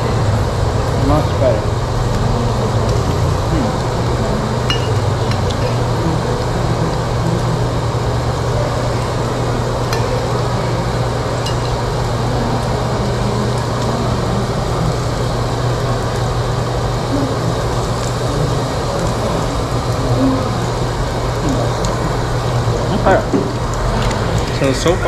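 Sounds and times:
beef sizzling on a grill: 0:00.0 - 0:25.0
ventilation hum: 0:00.0 - 0:25.0
cutlery clinking: 0:04.7 - 0:05.6.

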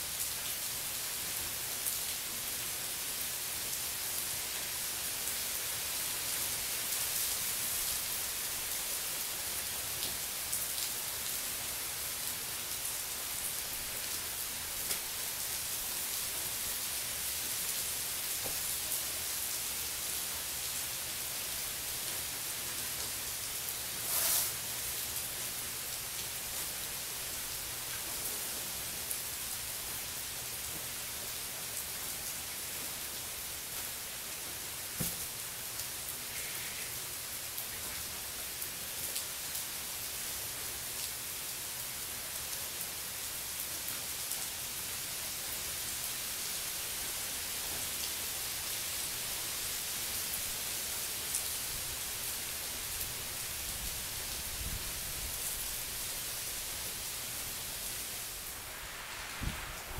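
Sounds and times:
heavy rain on pool and concrete: 0:00.0 - 0:59.9.

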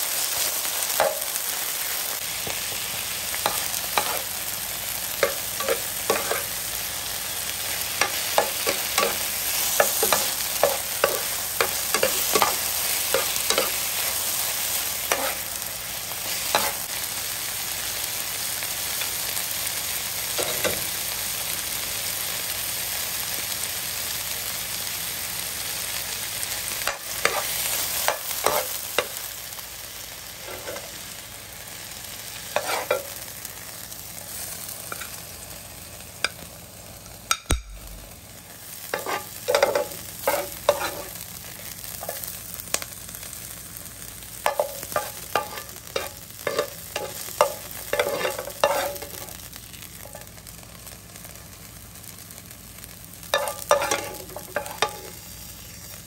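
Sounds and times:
greens sizzling in frying pan: 0:00.0 - 0:56.0
metal spoon scraping pan: 0:05.2 - 0:06.5, 0:08.0 - 0:13.8, 0:15.1 - 0:15.4, 0:27.2 - 0:28.8, 0:32.6 - 0:33.1, 0:38.9 - 0:41.1, 0:44.5 - 0:49.4, 0:53.4 - 0:55.2.

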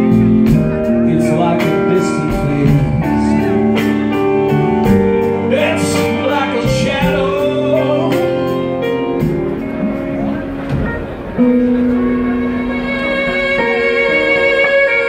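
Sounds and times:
person singing: 0:00.0 - 0:08.9
drums cymbal beat: 0:00.0 - 0:11.3
organ holding chords: 0:00.0 - 0:15.0
violin line: 0:00.0 - 0:15.0.

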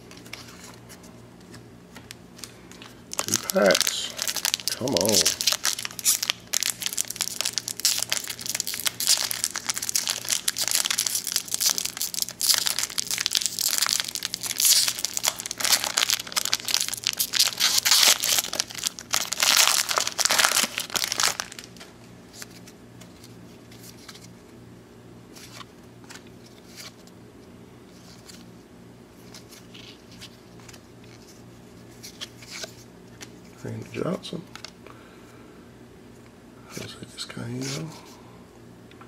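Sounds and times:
wrapper crinkling: 0:02.0 - 0:22.7.

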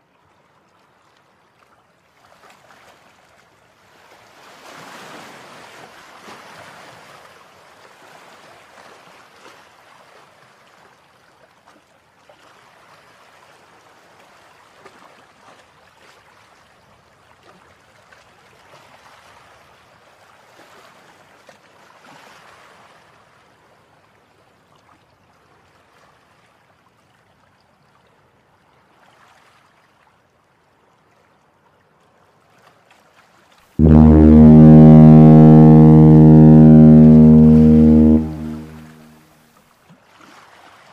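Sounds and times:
river water lapping at bank: 0:00.1 - 0:13.2, 0:40.0 - 0:40.9
ship's horn blaring: 0:33.8 - 0:39.2.

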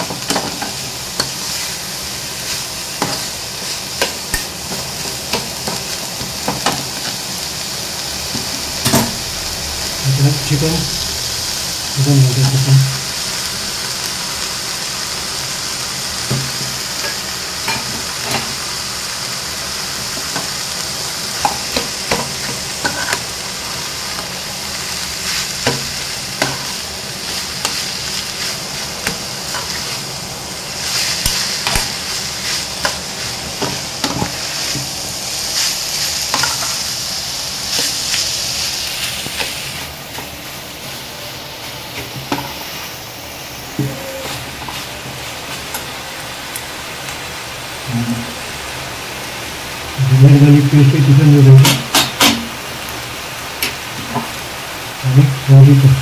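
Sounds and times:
food sizzling in a pan: 0:00.0 - 0:56.0
spatula scraping and tapping pan: 0:31.2 - 0:32.0.

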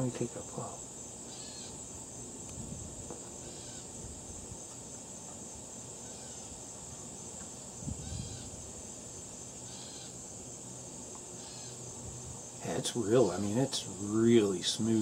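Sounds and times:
insects droning: 0:00.0 - 0:15.0
faint bird calls: 0:01.2 - 0:01.9, 0:03.2 - 0:04.0, 0:06.0 - 0:06.6, 0:07.9 - 0:08.6, 0:09.6 - 0:10.2, 0:11.3 - 0:11.8.

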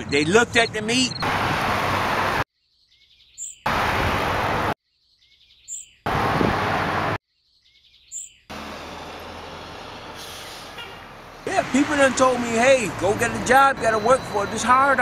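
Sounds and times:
steady traffic noise: 0:00.0 - 0:02.4, 0:03.6 - 0:04.8, 0:06.0 - 0:07.2, 0:08.5 - 0:15.0
street noise: 0:00.0 - 0:02.4, 0:03.6 - 0:04.8, 0:06.0 - 0:07.2, 0:08.5 - 0:15.0
high bird chirps: 0:02.6 - 0:03.7, 0:04.8 - 0:06.1, 0:07.3 - 0:08.5.

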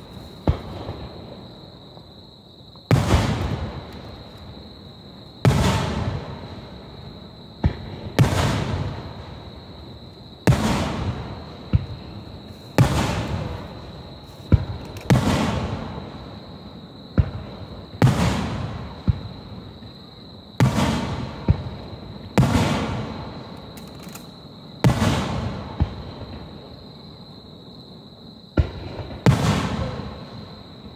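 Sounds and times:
firework shells booming: 0:00.0 - 0:01.5, 0:02.9 - 0:04.1, 0:05.4 - 0:06.6, 0:07.6 - 0:09.3, 0:10.4 - 0:16.2, 0:17.1 - 0:19.5, 0:20.6 - 0:23.5, 0:24.8 - 0:26.5, 0:28.6 - 0:30.9
sharp firework cracks: 0:02.9 - 0:04.0, 0:14.4 - 0:15.9, 0:24.8 - 0:26.0, 0:28.6 - 0:30.1.

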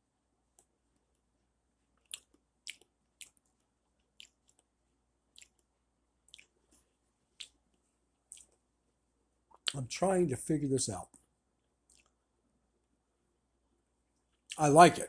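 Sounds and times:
wet lip smacks and mouth clicks: 0:02.0 - 0:04.7, 0:05.3 - 0:05.7, 0:06.3 - 0:06.8, 0:07.4 - 0:08.6, 0:11.8 - 0:12.2.

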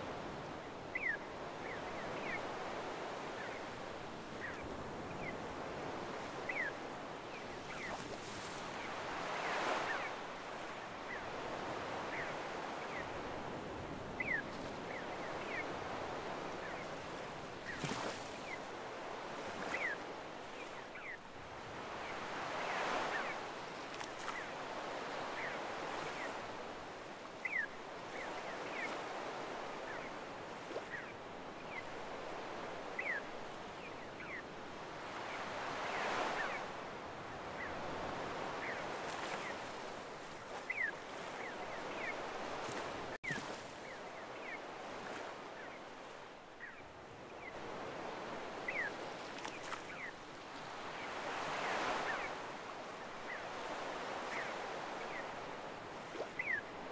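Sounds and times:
waves washing on beach: 0:00.0 - 0:56.9
gulls calling: 0:40.5 - 0:43.1.

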